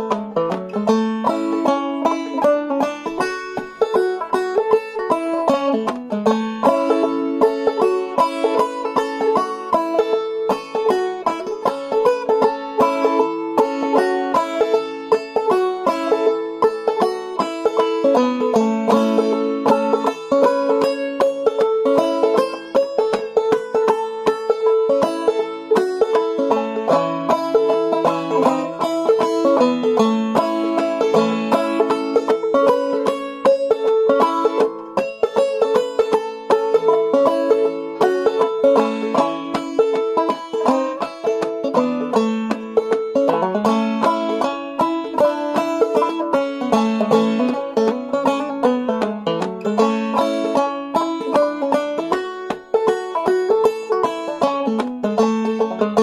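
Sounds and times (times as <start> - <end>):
banjo playing a fiddle tune: 0.0 - 56.0.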